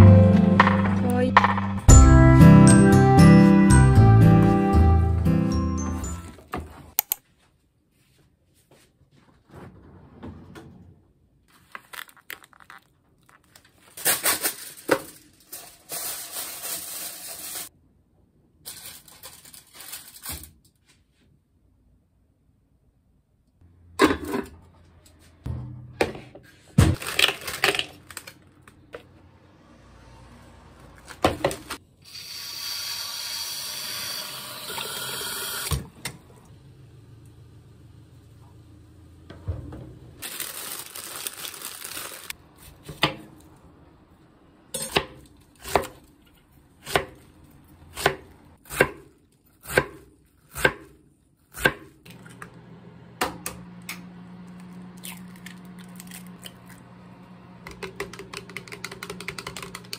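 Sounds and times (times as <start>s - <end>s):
plastic bag crinkling: 11.5s - 17.7s, 18.7s - 20.6s, 27.0s - 28.8s, 40.2s - 42.4s.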